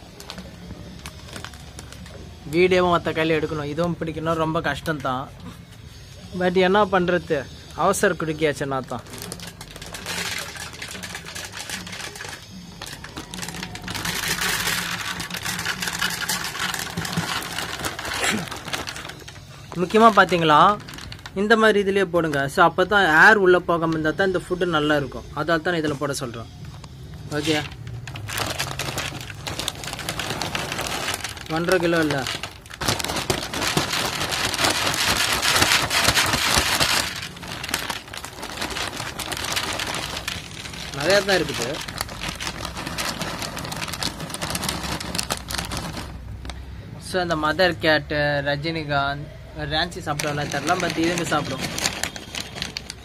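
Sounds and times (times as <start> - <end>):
kibble rattling into plastic jar: 8.9 - 21.6, 27.4 - 46.4, 50.0 - 53.0.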